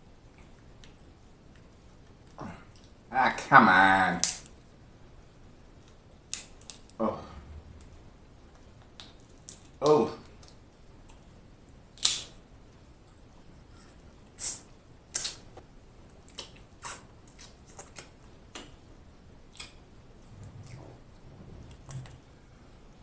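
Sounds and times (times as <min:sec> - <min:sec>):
crab shells cracking: 0:06.3 - 0:07.0, 0:12.0 - 0:12.4
mouth sounds of eating: 0:16.1 - 0:18.8, 0:19.5 - 0:22.3.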